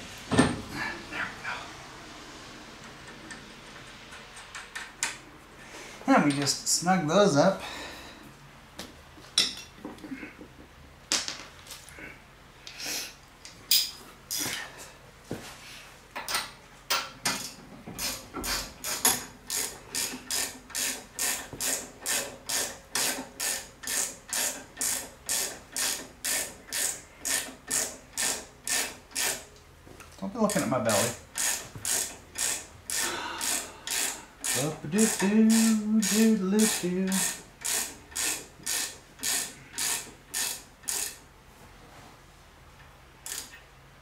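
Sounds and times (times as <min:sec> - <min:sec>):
hand ratchet clicking: 0:18.0 - 0:29.5, 0:30.5 - 0:41.2, 0:43.2 - 0:43.6.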